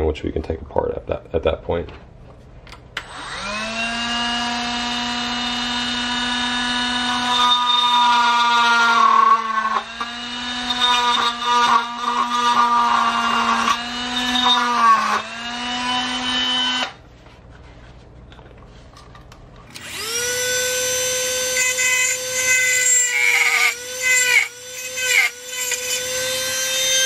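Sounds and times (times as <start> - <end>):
rotary tool grinding plastic: 19.7 - 27.0.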